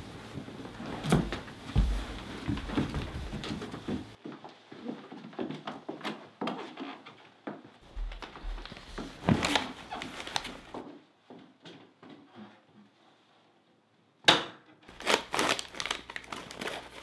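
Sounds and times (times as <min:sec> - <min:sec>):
scuffling footsteps: 0:00.0 - 0:04.2, 0:07.8 - 0:10.8
knocks and thumps: 0:01.0 - 0:04.2.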